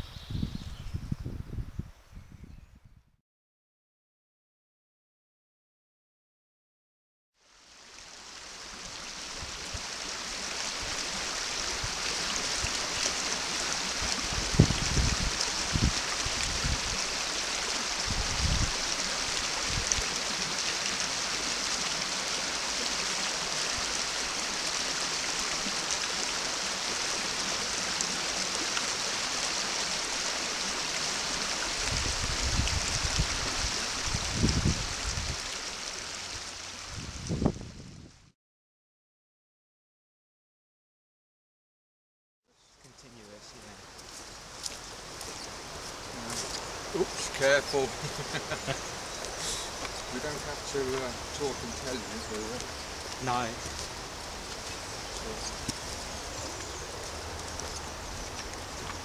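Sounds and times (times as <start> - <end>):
stream running over stones: 7.4 - 37.9, 42.7 - 59.0.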